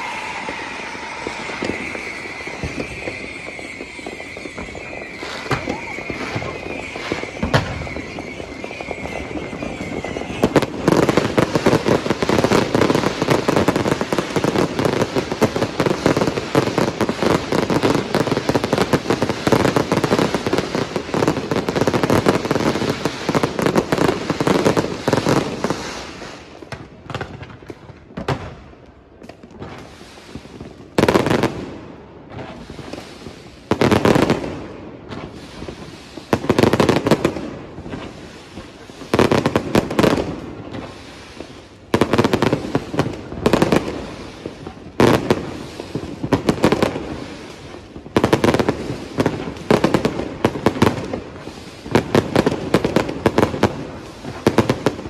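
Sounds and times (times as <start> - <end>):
high steady whistle: 0.0 - 10.4
fireworks crackling and banging: 0.0 - 55.0.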